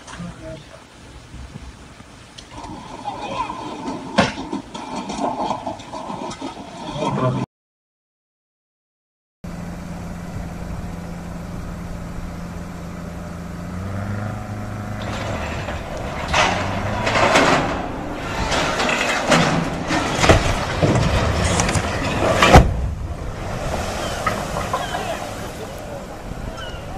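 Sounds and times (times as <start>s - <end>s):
water rushing and splashing: 0.0s - 7.4s, 13.1s - 26.9s
engine running steadily: 9.5s - 18.2s.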